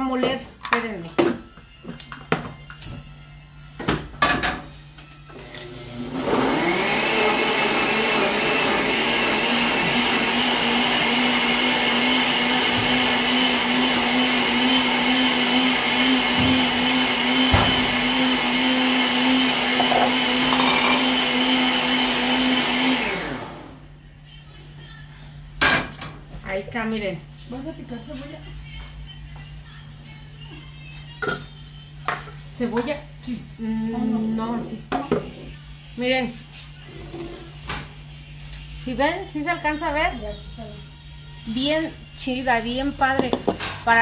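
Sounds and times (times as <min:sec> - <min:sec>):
blender motor whirring: 0:05.3 - 0:23.8
blender jar knocks: 0:19.7 - 0:21.1.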